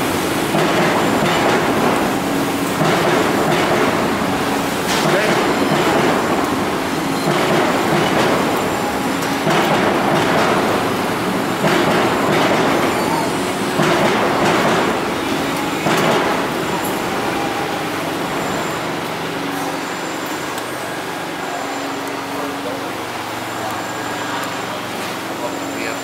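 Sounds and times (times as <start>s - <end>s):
busy market rumble: 0.0s - 26.0s
sharp knocks: 7.2s - 8.6s, 9.4s - 10.8s, 11.6s - 13.0s, 13.8s - 15.0s, 15.8s - 16.5s.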